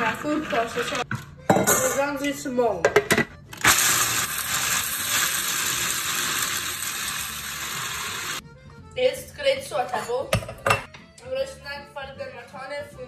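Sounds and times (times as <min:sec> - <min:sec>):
food processor grinding nuts: 0:03.6 - 0:08.4.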